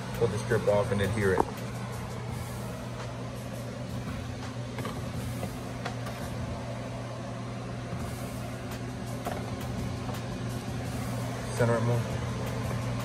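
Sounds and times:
low machine hum: 0:00.0 - 0:13.0.

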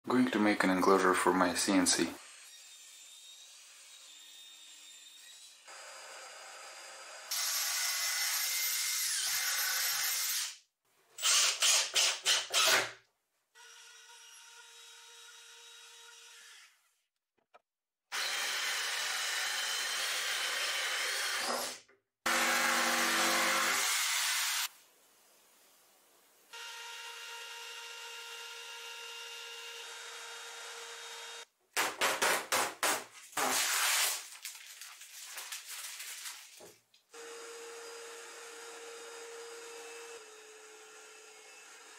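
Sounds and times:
cordless drill driving screws: 0:11.2 - 0:12.9
power tool humming: 0:22.3 - 0:24.7, 0:37.1 - 0:41.9.

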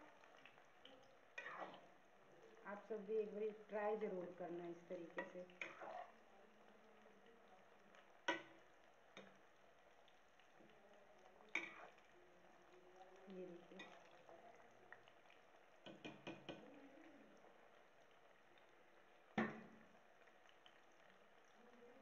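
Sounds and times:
oil sizzling: 0:00.0 - 0:22.0
ladle knocking against pan: 0:15.8 - 0:16.7, 0:19.4 - 0:19.7.

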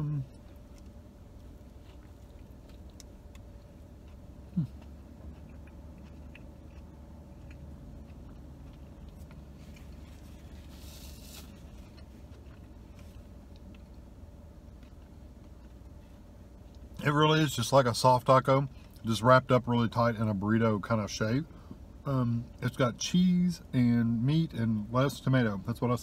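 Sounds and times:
car interior hum: 0:00.0 - 0:26.0
man chewing food: 0:00.3 - 0:17.0
rising hum-like mouth sound: 0:04.4 - 0:05.0.

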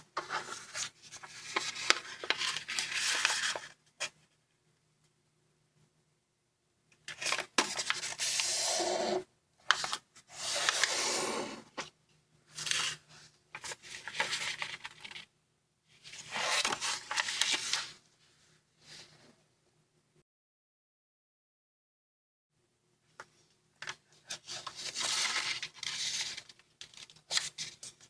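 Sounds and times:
paper rustling and rubbing: 0:00.2 - 0:04.2, 0:07.1 - 0:09.0, 0:09.7 - 0:11.5, 0:12.6 - 0:15.2, 0:16.0 - 0:18.0, 0:24.3 - 0:28.0.

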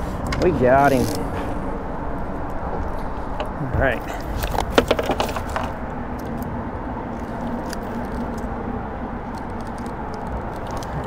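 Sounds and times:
rattles and knocks: 0:02.6 - 0:05.9.

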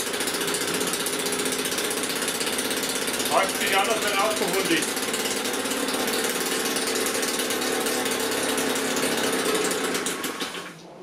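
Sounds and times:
two-stroke engine buzzing: 0:00.0 - 0:10.8.

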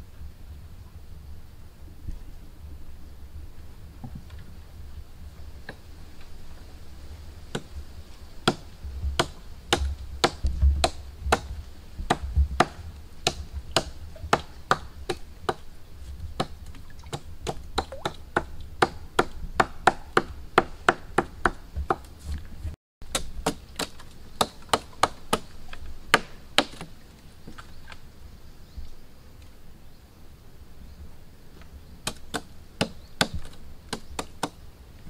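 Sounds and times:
hand tool chopping strikes: 0:09.2 - 0:11.5, 0:12.1 - 0:15.6, 0:17.1 - 0:22.0, 0:23.1 - 0:25.5, 0:26.1 - 0:26.9.

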